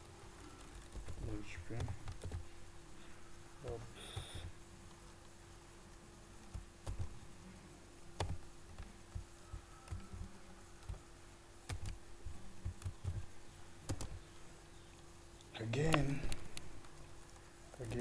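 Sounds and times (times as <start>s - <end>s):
faint steady hum: 0.0s - 18.0s
keyboard typing: 0.5s - 2.4s, 3.6s - 4.5s, 6.4s - 7.2s, 8.2s - 11.0s, 11.6s - 14.3s.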